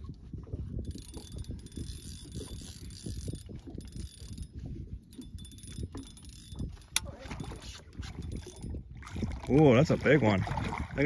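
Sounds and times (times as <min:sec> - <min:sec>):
fishing reel whirring: 0:00.8 - 0:08.8.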